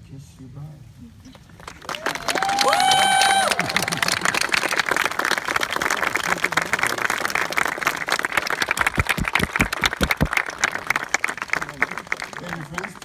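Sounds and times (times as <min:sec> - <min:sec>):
crowd applauding: 0:01.4 - 0:13.0.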